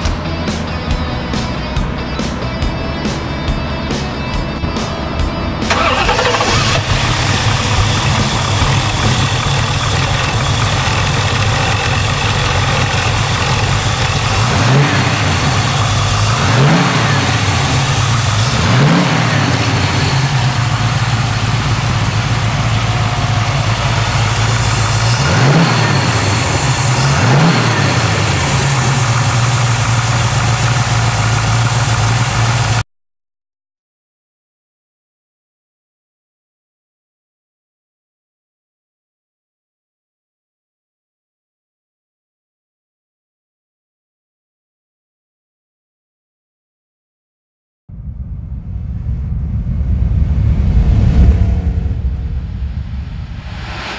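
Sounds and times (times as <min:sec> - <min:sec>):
car engine idling and revving: 0:00.0 - 0:32.8, 0:48.0 - 0:53.9.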